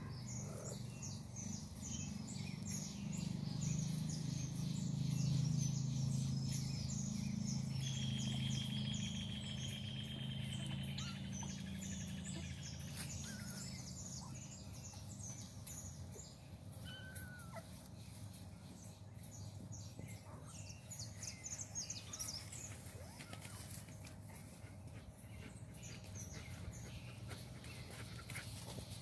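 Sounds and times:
kitten high call: 0:16.8 - 0:17.8.

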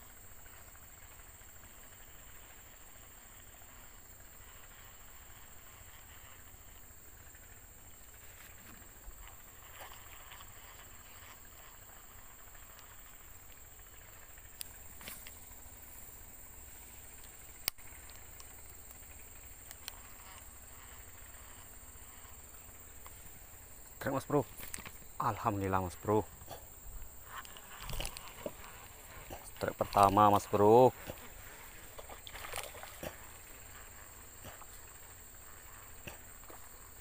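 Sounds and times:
high-pitched insect drone: 0:00.0 - 0:37.0
faint clicks: 0:14.5 - 0:15.4, 0:17.0 - 0:22.3.

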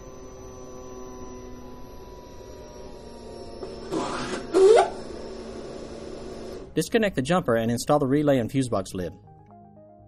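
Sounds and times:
electric fuel pump humming: 0:00.0 - 0:06.8.

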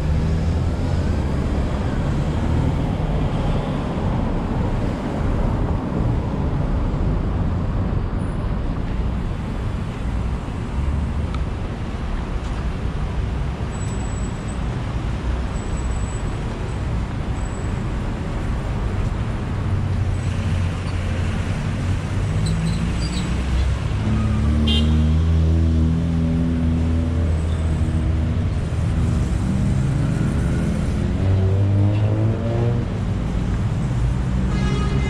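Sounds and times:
rumble of passing vehicles: 0:00.0 - 0:35.0
car horn toot: 0:24.6 - 0:25.0, 0:34.5 - 0:35.0.

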